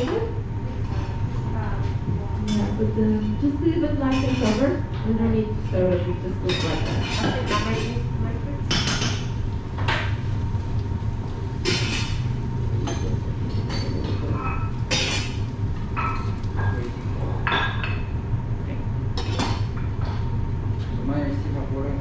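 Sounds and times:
steady low hum: 0.0s - 22.0s
cookware and dishes clinking: 4.1s - 4.8s, 6.4s - 8.0s, 12.8s - 18.1s.

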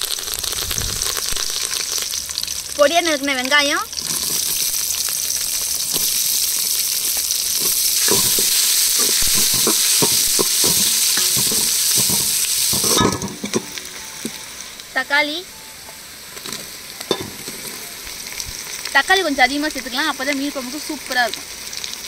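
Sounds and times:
onions sizzling in hot oil: 0.0s - 22.0s
spatula scraping and stirring: 4.0s - 4.8s, 7.1s - 14.5s.

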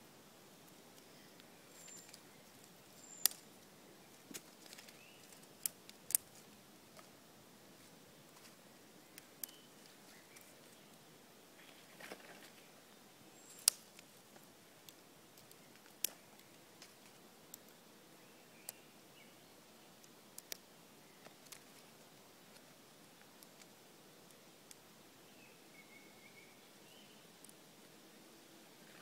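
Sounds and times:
twigs rustling: 1.0s - 11.0s, 11.6s - 12.7s, 13.4s - 17.8s, 21.2s - 23.8s
twigs snapping: 3.0s - 3.4s, 4.3s - 7.1s, 13.4s - 17.6s.

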